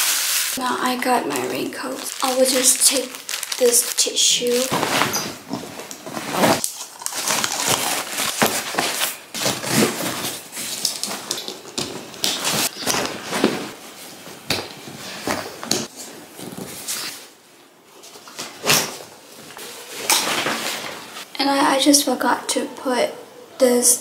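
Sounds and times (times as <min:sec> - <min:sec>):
nylon fabric rustling: 0:00.0 - 0:17.3
straps being pulled: 0:02.0 - 0:11.3.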